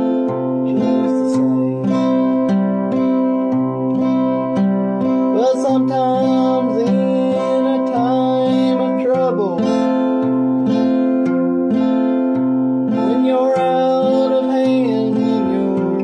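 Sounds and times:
man singing: 0:00.0 - 0:02.6, 0:05.3 - 0:11.9, 0:12.9 - 0:16.0
acoustic guitar picking: 0:00.0 - 0:16.0.

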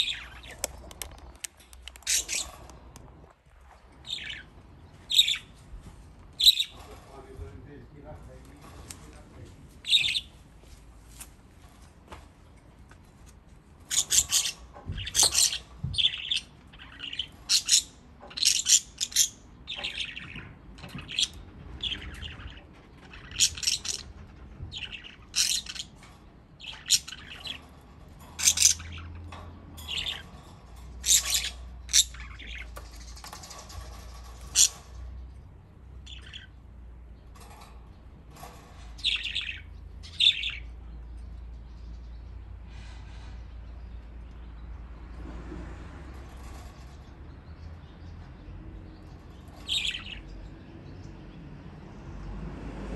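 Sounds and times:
budgerigars chirping: 0:00.0 - 0:03.0, 0:04.0 - 0:05.5, 0:06.4 - 0:07.1, 0:09.8 - 0:10.3, 0:13.8 - 0:35.2, 0:36.0 - 0:36.6, 0:38.3 - 0:40.8, 0:48.4 - 0:50.4.

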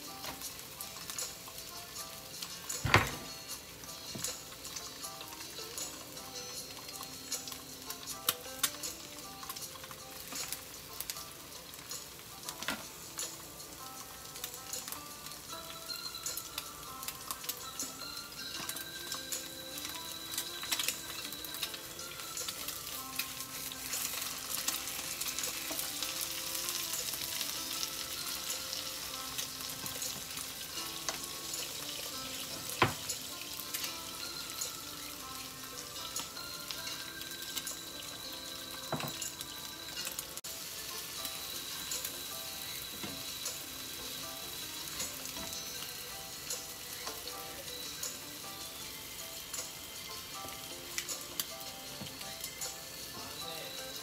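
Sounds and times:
food sizzling in skillet: 0:00.0 - 0:54.0
utensils tapping and scraping pans: 0:26.8 - 0:34.0, 0:38.8 - 0:40.4, 0:41.8 - 0:44.2.

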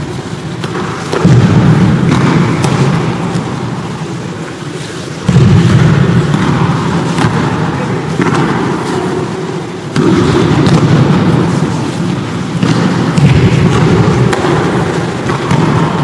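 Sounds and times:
low rumble of busy hall: 0:00.0 - 0:16.0.

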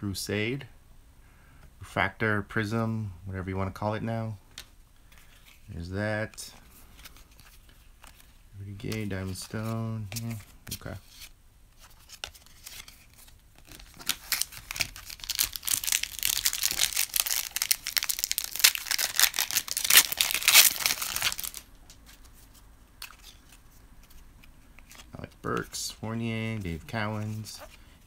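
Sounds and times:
wrapper tearing and crinkling: 0:13.6 - 0:21.7.

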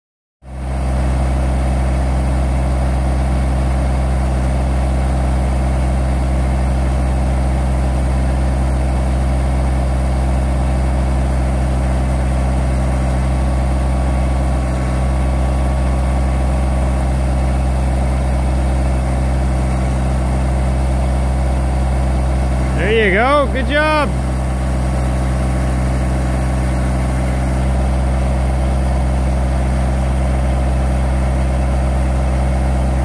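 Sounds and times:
tractor diesel engine running: 0:13.0 - 0:30.2.

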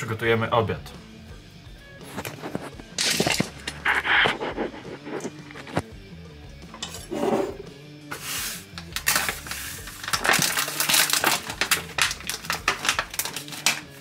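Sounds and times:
plastic packaging crinkling and tearing: 0:02.2 - 0:04.6, 0:08.8 - 0:14.0
knife slitting plastic packaging: 0:03.0 - 0:04.1, 0:08.2 - 0:14.0.

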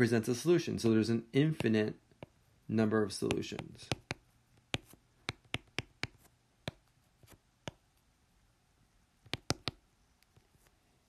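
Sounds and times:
pen writing on paper: 0:03.3 - 0:07.3.

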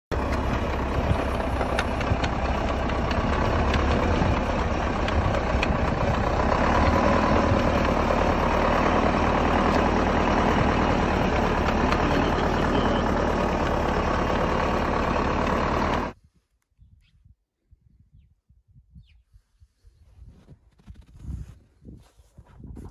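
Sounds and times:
tractor diesel engine running: 0:00.1 - 0:16.2.

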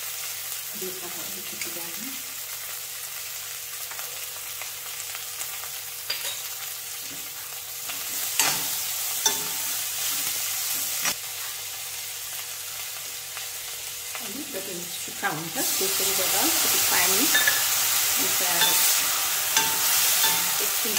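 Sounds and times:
vegetables sizzling in hot oil: 0:00.0 - 0:20.9
stirring in a wok: 0:08.0 - 0:11.1, 0:16.6 - 0:20.9.

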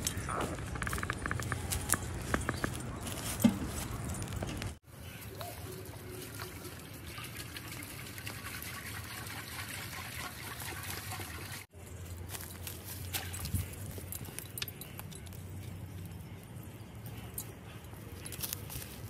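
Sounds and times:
water pouring into metal pot: 0:05.6 - 0:11.6.

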